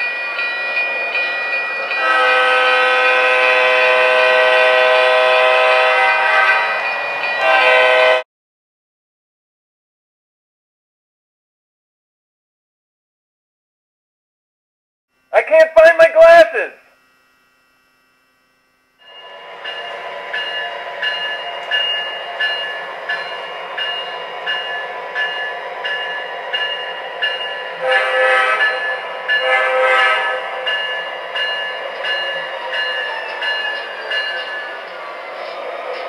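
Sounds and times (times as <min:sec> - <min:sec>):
model locomotive bell ringing: 0:00.0 - 0:05.0, 0:05.6 - 0:08.2, 0:19.0 - 0:36.0
model locomotive horn blasts: 0:01.9 - 0:08.2, 0:27.7 - 0:30.8.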